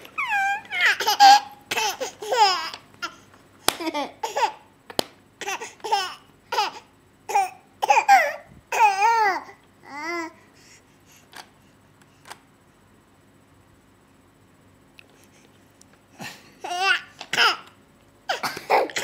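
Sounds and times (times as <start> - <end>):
baby laughing and squealing: 0.0 - 3.2.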